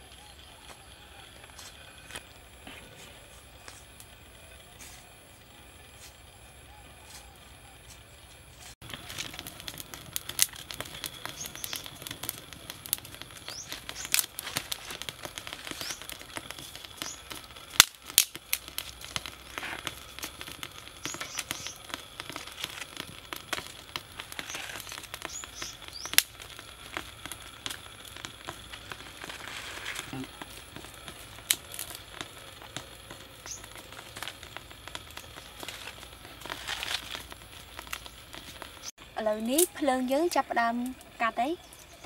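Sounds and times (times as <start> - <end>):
twig fire crackling and popping: 0.0 - 42.0
birds chirping: 10.7 - 12.2, 13.0 - 14.4, 20.9 - 22.0, 24.3 - 26.4, 32.0 - 34.1, 41.2 - 42.0.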